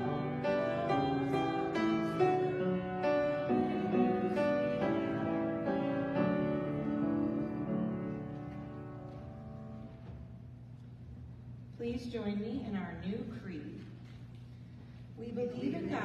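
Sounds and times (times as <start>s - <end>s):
grand piano playing chords: 0.0s - 11.7s.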